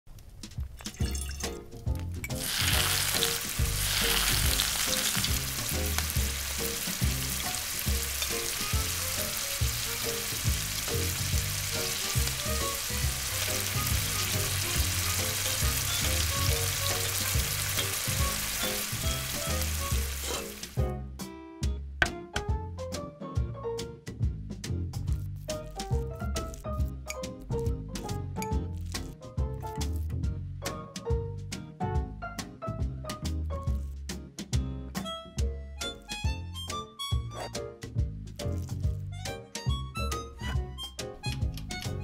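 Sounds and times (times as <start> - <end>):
vegetables sizzling in oil: 2.3 - 20.8.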